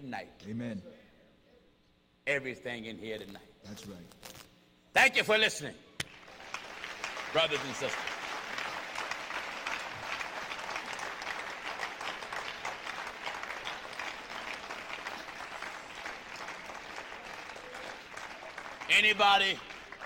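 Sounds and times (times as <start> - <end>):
crowd applauding: 6.1 - 20.0.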